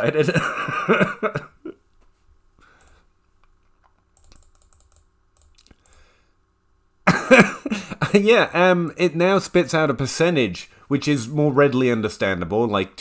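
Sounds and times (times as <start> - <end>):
keyboard typing: 3.8 - 6.1.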